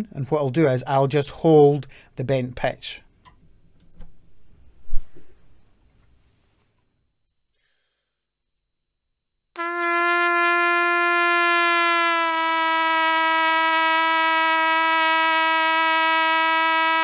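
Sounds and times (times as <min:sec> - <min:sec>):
trumpet long sustained note: 0:09.6 - 0:17.0.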